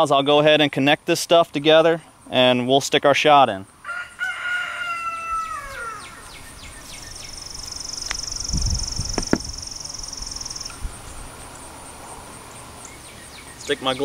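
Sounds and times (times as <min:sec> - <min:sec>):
insect trilling: 0:03.7 - 0:14.0
rooster crowing: 0:03.8 - 0:06.4.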